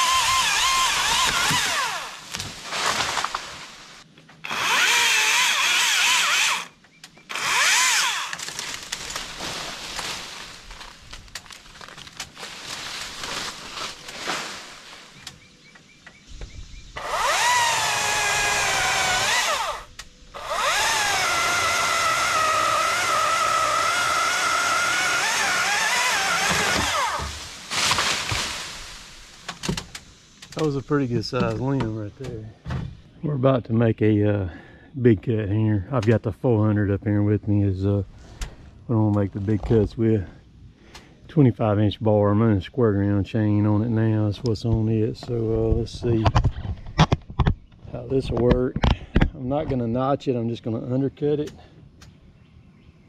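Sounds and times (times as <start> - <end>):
chainsaw cutting wood: 0.0 - 3.4, 4.4 - 6.7, 7.3 - 9.4, 17.0 - 29.8.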